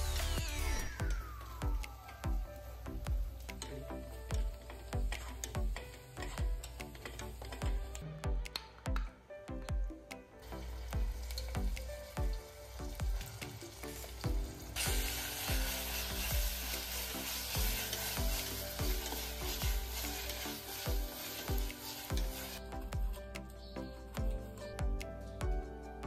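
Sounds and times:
onions sizzling in oil: 0.0s - 8.1s, 10.4s - 23.2s
spoon stirring in a pot: 4.3s - 8.8s, 13.2s - 22.6s.

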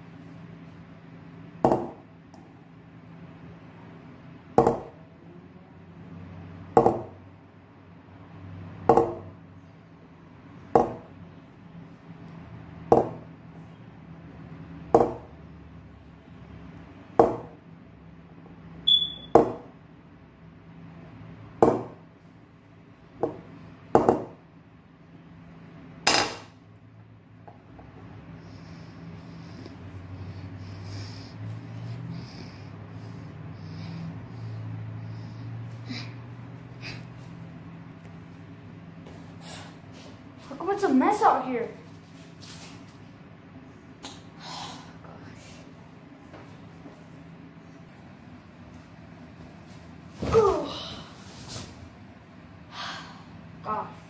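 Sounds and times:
steady low hum: 0.0s - 54.0s.

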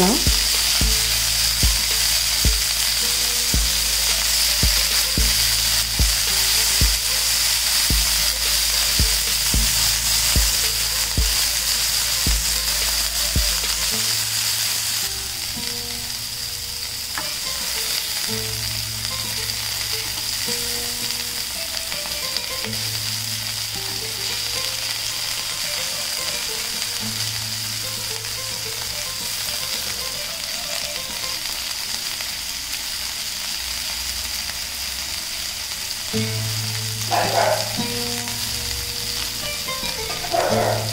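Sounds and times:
kebabs sizzling in oil: 0.0s - 40.9s.

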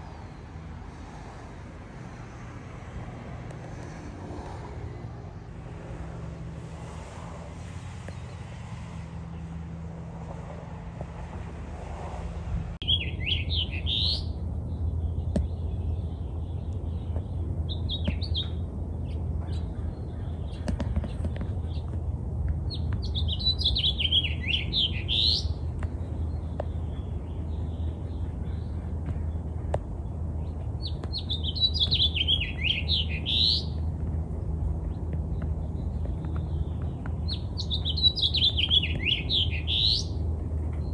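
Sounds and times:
steady low hum: 0.0s - 37.8s
songbird warbling: 12.8s - 14.4s, 22.7s - 25.6s, 30.8s - 33.8s, 37.2s - 40.2s.

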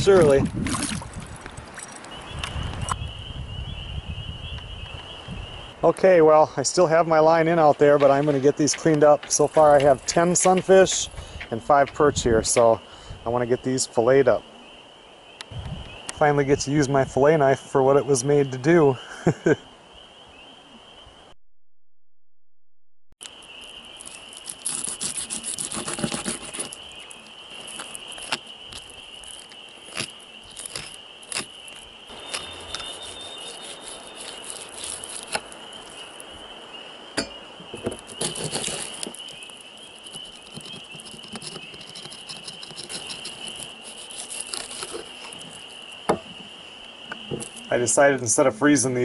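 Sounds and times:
knife scraping fish fillets: 24.4s - 26.8s, 32.2s - 36.0s, 38.0s - 45.6s.

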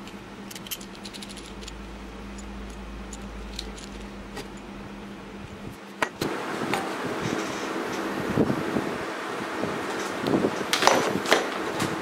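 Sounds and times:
small metal parts clinking: 0.0s - 4.7s
faint steady hum: 0.0s - 12.0s.

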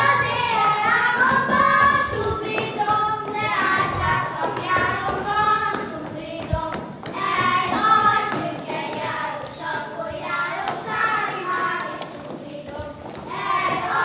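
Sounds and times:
children singing a folk song: 0.0s - 14.0s.

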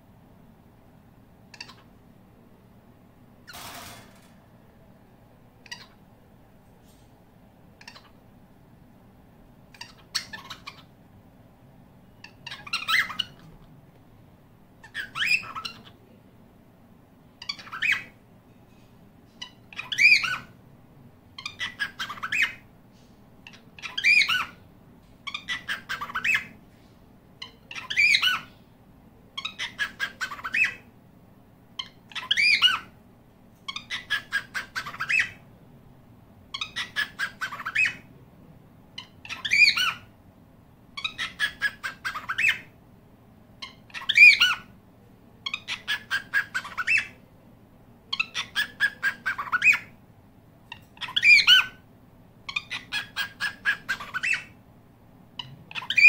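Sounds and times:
cockatiels squawking: 1.5s - 1.9s, 5.6s - 6.0s, 7.8s - 8.2s, 9.7s - 10.9s, 12.2s - 13.6s, 14.8s - 16.0s, 17.4s - 18.2s, 19.4s - 20.6s, 21.4s - 22.6s, 23.5s - 24.6s, 25.2s - 26.6s, 27.4s - 28.5s, 29.4s - 30.9s, 31.8s - 32.9s, 33.7s - 35.4s, 36.5s - 38.1s, 39.0s - 40.1s, 41.0s - 42.7s, 43.6s - 44.7s, 45.4s - 47.2s, 48.1s - 50.0s, 50.7s - 51.8s, 52.5s - 54.6s, 55.4s - 56.0s.

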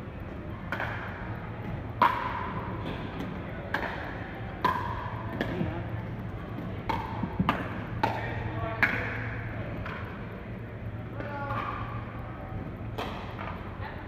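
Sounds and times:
paddle hitting pickleball: 0.7s - 5.6s, 6.6s - 10.1s.

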